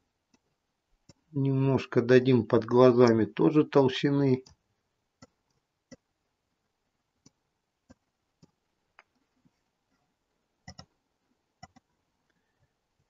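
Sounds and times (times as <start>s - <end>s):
computer mouse clicks: 10.7s - 10.9s, 11.6s - 11.9s.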